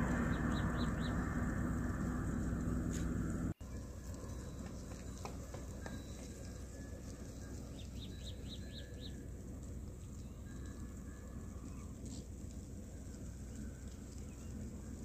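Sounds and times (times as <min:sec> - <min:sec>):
low rumble: 0:00.0 - 0:04.9
small bird chirping: 0:00.1 - 0:01.3, 0:07.6 - 0:09.2
goats walking through dry grass: 0:01.4 - 0:15.0.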